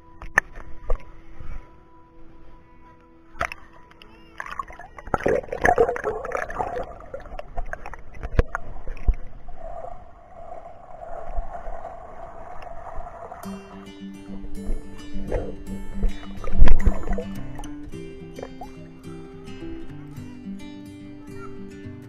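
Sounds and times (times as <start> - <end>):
water sloshing and splashing: 3.4 - 18.8
muffled underwater rush: 4.4 - 18.8.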